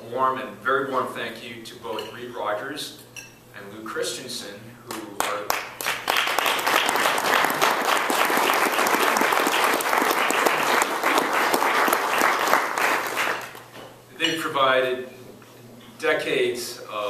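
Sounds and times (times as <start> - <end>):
audience applauding: 5.2 - 13.6.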